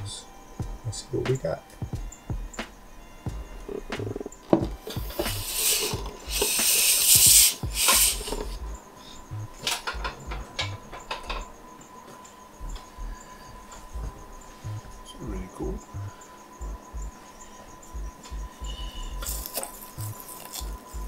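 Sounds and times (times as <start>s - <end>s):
tub knocking on metal table: 3.8s - 5.3s.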